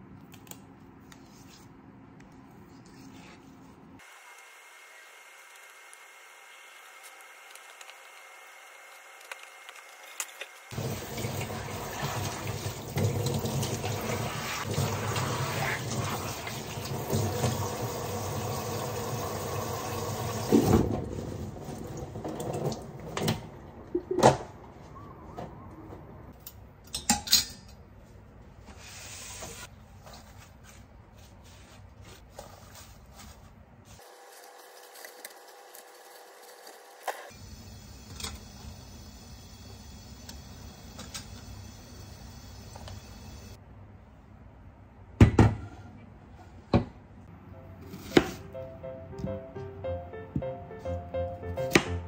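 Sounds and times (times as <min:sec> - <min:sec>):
kitchen tap running: 0:10.7 - 0:22.9.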